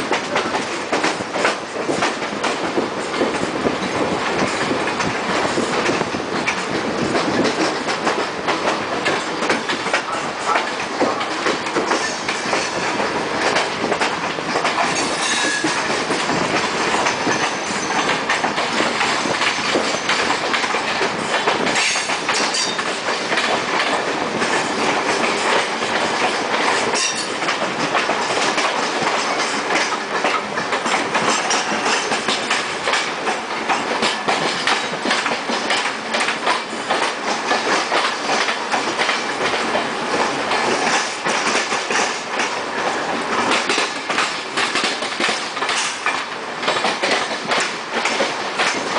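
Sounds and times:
train wheels clacking on track: 0.0 - 48.9.

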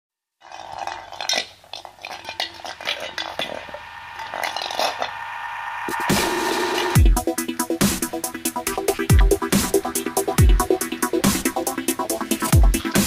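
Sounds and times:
metal bowl clattering on asphalt: 0.4 - 5.3.

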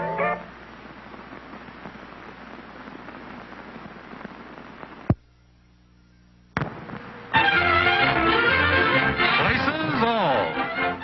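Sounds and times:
faint low hum: 0.0 - 8.2
crackling film soundtrack hiss: 0.0 - 11.0
sharp pop: 6.6 - 7.1.

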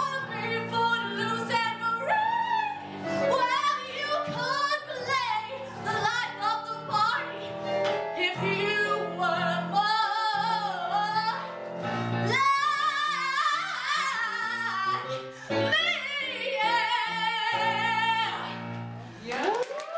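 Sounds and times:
woman singing with vibrato: 0.0 - 7.4, 8.2 - 11.5, 12.3 - 18.6
keyboard accompaniment: 0.0 - 19.3.

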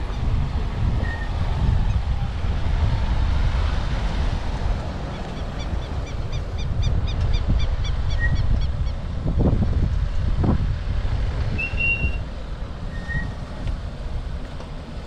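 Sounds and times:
vehicle low rumble: 0.0 - 15.0
wind buffeting microphone: 0.0 - 15.0.

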